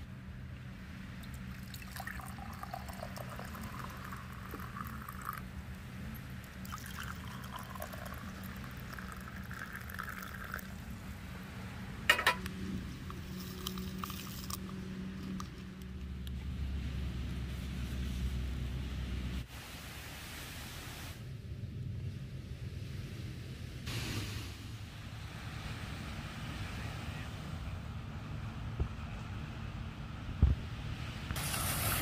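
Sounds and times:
hot water pouring into mug: 1.5 - 5.4, 6.6 - 10.7.

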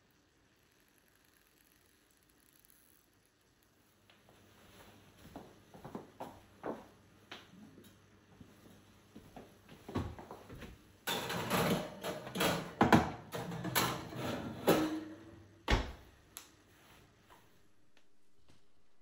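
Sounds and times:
kitchen clatters and scrapes: 11.0 - 15.4.

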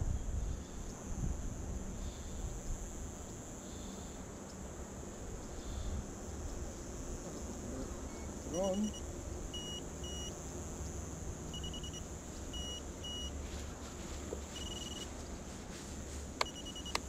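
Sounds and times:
high electronic beeps: 8.1 - 9.0, 9.6 - 10.3, 11.5 - 13.3, 14.6 - 15.1, 16.4 - 17.0
sharp clicks: 16.4 - 17.0.

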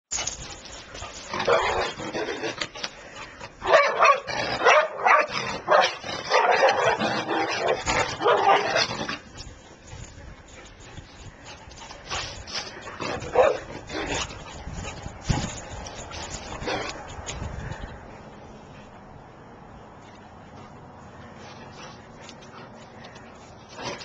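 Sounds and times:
dogs barking: 1.4 - 2.0, 3.6 - 8.9, 13.1 - 13.7.

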